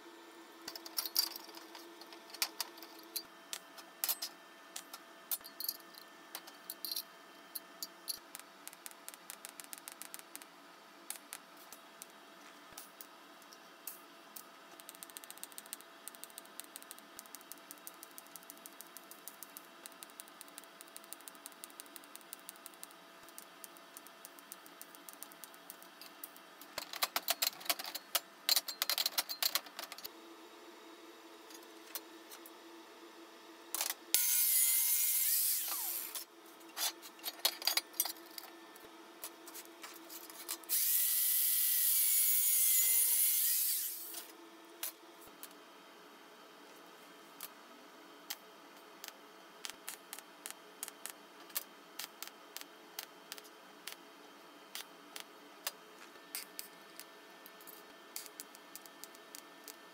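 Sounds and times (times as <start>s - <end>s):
metal pieces clicking and tapping: 7.8s - 10.5s.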